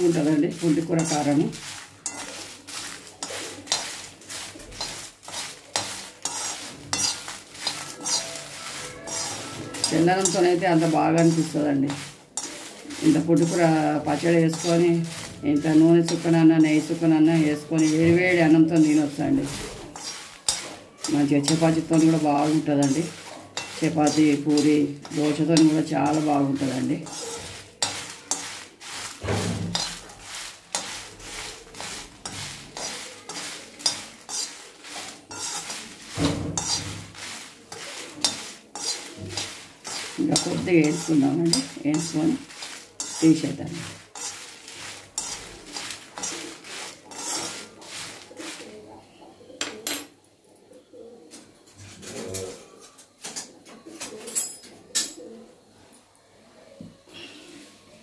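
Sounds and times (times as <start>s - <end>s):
chillies frying in oil: 0.0s - 49.0s
metal spoon scraping a wok: 0.0s - 49.0s
pigeon cooing: 3.1s - 3.8s, 7.8s - 9.9s, 45.2s - 58.0s.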